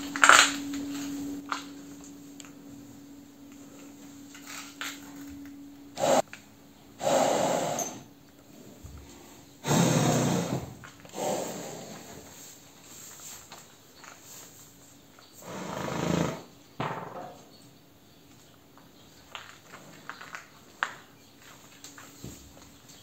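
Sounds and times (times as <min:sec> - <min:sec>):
horses snorting: 0:06.0 - 0:06.2, 0:07.0 - 0:12.5, 0:15.4 - 0:16.6.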